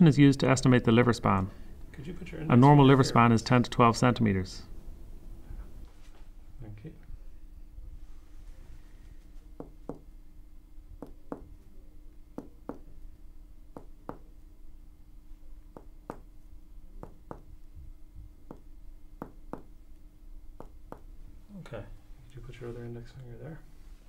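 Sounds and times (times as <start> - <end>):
soft finger taps on chest: 15.7 - 16.3, 20.6 - 21.1.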